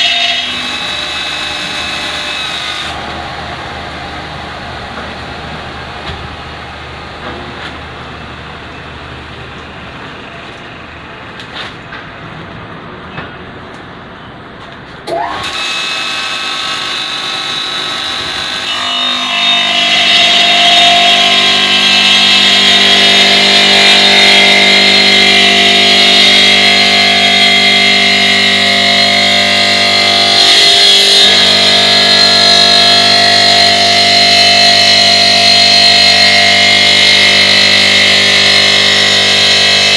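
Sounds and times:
stone saw blade whining: 0.0 - 8.8, 15.1 - 39.9
machine hum: 0.0 - 13.0, 15.1 - 39.9.

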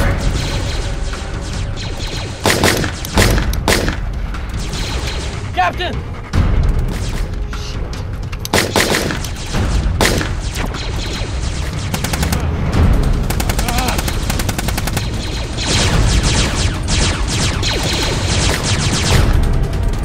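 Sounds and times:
automatic gunfire: 2.0 - 4.1, 8.5 - 12.4.

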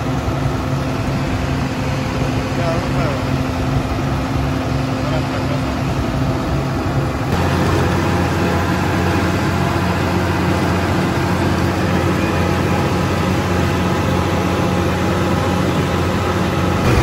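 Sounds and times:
tractor diesel engine under load: 0.0 - 17.0.

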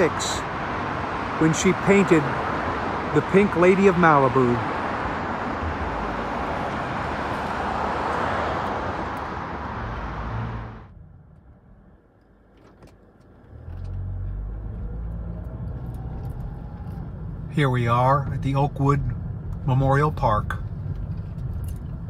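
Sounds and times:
road traffic rushing: 0.0 - 22.0
car engine rumble inside cabin: 8.6 - 22.0.

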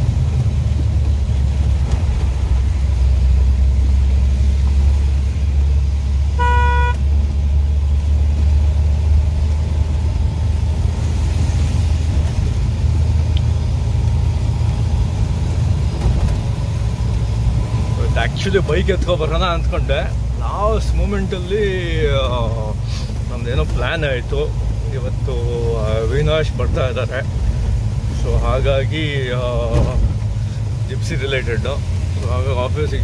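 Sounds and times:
car engine and tyre rumble: 0.0 - 33.0
car horn toot: 6.4 - 7.1.

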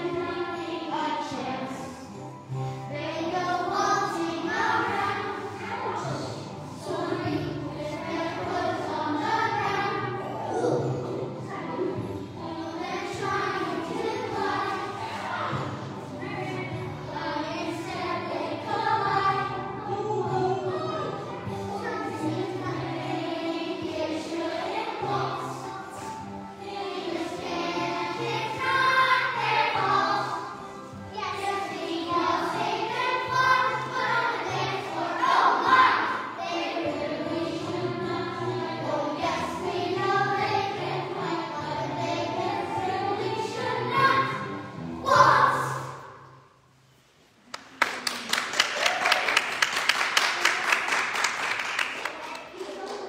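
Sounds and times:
musical accompaniment: 0.0 - 46.7
children singing in chorus: 2.9 - 44.5.

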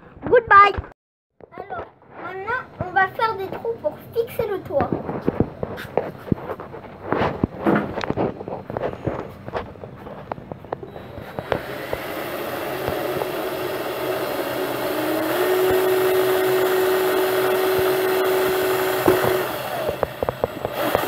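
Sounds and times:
clicks: 7.3 - 12.1
cordless drill boring into wood: 10.9 - 21.0.

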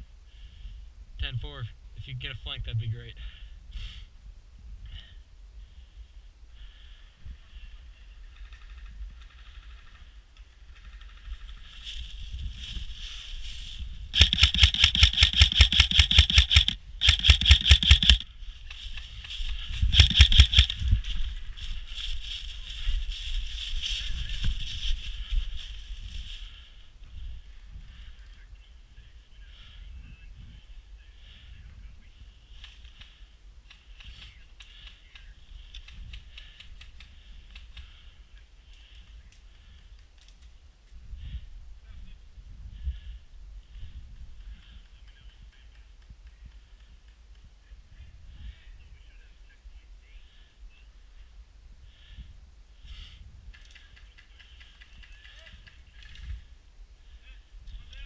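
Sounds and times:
airsoft rifle full-auto bursts: 14.2 - 18.2, 19.8 - 20.8.

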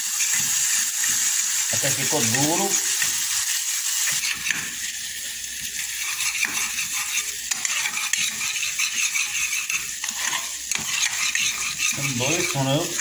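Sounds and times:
paste sizzling in hot oil: 0.0 - 13.0
spoon scraping a pot: 0.1 - 3.2, 4.0 - 4.9, 5.7 - 13.0.

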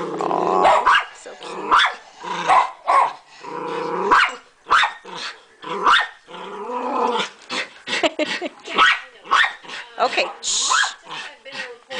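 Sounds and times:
dog growling: 0.0 - 2.7, 3.3 - 8.6
dog barking: 0.6 - 3.2, 4.1 - 5.0, 5.9 - 6.2, 8.7 - 9.6, 10.2 - 11.0.

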